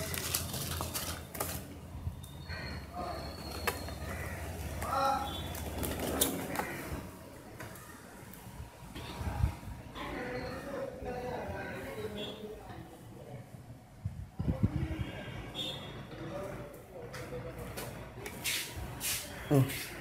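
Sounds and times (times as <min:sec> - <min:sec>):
plastic wrapping crinkling: 0:00.0 - 0:01.9.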